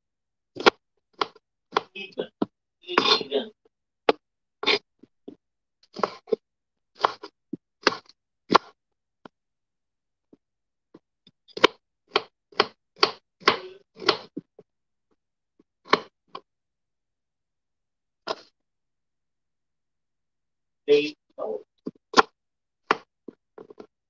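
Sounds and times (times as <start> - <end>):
knife chopping on wooden board: 0.6 - 1.9, 7.0 - 8.8, 11.5 - 14.5, 15.8 - 16.2, 21.9 - 23.9.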